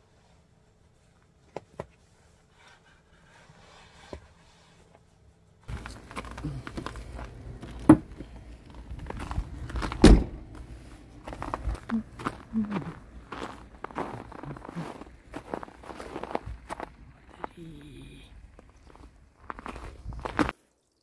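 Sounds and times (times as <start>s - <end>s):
heavy thumps: 5.7s - 14.1s
boot laces clicking and rustling: 5.7s - 17.5s, 18.5s - 20.5s
footsteps and scuffs: 5.7s - 20.5s.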